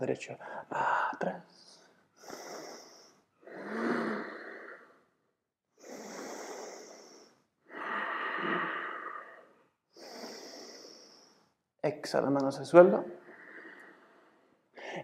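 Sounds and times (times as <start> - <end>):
person breathing deeply: 2.2 - 5.2, 5.8 - 11.6, 13.1 - 15.0.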